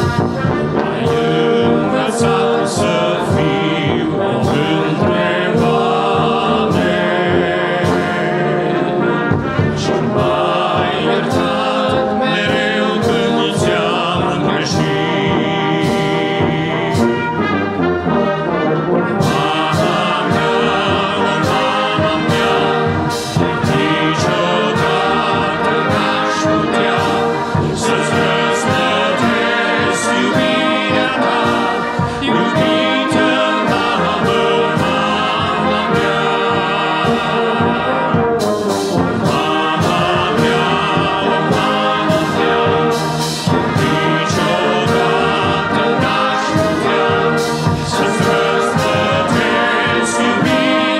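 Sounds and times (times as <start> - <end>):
brass band playing a hymn: 0.0 - 50.9
sharp percussion strokes: 19.2 - 37.3, 38.4 - 50.9.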